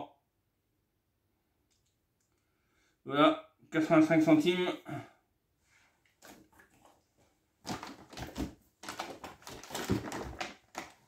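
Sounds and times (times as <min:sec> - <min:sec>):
packaging rustling and crinkling: 0:06.1 - 0:11.0.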